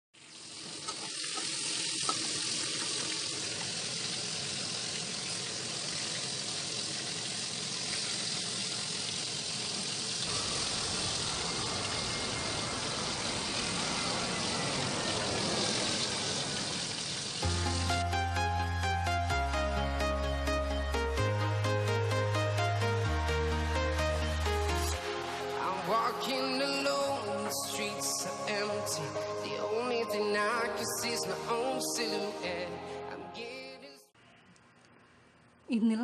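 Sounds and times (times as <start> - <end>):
chicken deep-frying in oil: 0.2 - 17.4
music with heavy bass: 17.4 - 29.6.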